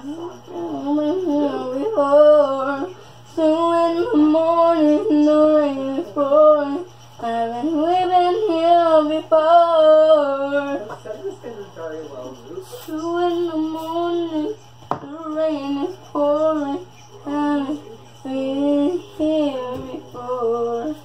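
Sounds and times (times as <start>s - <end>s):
young woman singing unaccompanied: 0.6s - 10.8s, 12.9s - 21.0s.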